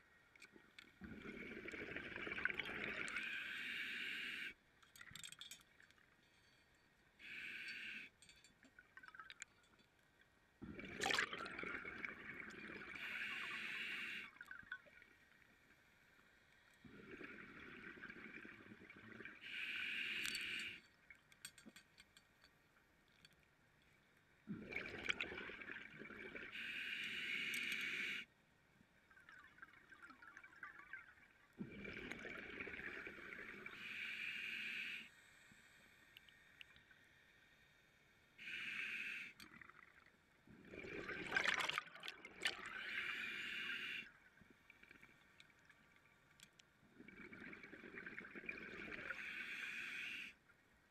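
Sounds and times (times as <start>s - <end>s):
hissing regulator inhale: 3.2s - 4.6s, 7.2s - 8.2s, 13.0s - 14.3s, 19.4s - 20.8s, 26.5s - 28.3s, 33.6s - 35.8s, 38.4s - 39.4s, 42.8s - 44.1s, 49.0s - 50.4s.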